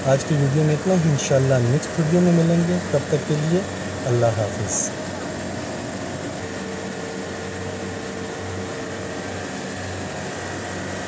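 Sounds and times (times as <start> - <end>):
compressor humming: 0.0 - 11.0.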